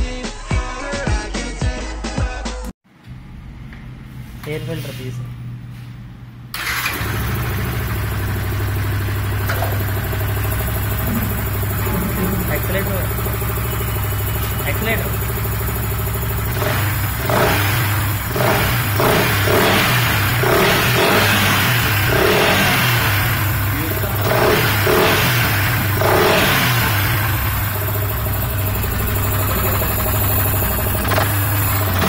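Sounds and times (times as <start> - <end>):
motorcycle engine revving and idling: 6.6 - 32.0.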